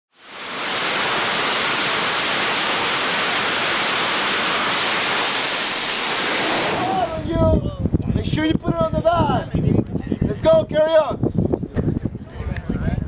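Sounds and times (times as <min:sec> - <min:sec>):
jet engines roaring: 0:00.2 - 0:07.6.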